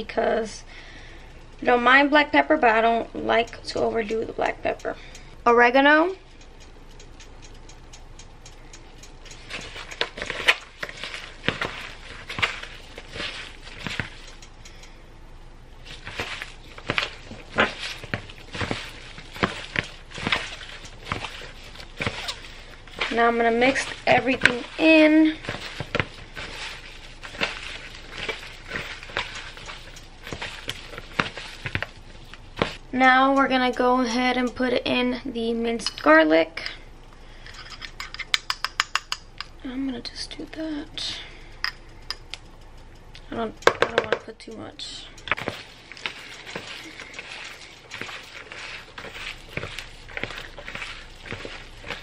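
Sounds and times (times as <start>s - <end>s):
wet squelches of raw meat: 15.8s - 32.8s, 45.2s - 52.0s.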